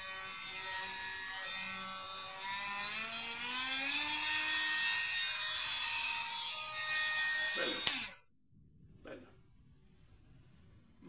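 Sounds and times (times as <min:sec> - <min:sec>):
oscillating multi-tool motor whine: 0:00.0 - 0:08.2.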